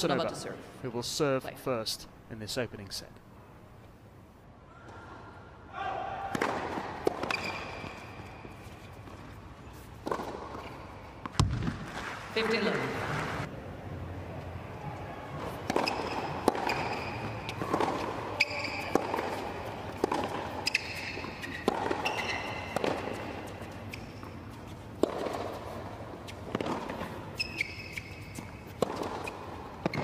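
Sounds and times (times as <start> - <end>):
tennis ball strikes: 6.3 - 8.1, 15.4 - 24.1, 24.9 - 25.8, 28.8 - 30.0
shoe squeaks on court: 7.2 - 9.0, 15.7 - 17.7, 18.3 - 19.4, 20.5 - 24.4, 27.3 - 30.0.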